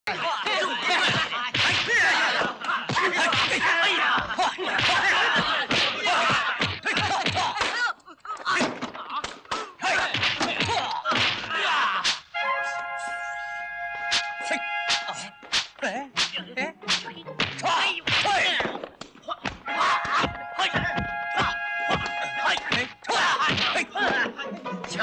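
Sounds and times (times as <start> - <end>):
fighters shouting and grunting: 0.1 - 12.3, 14.2 - 25.0
punch and slap impacts: 1.0 - 7.9, 10.0 - 12.3, 14.9 - 20.4, 22.0 - 24.2.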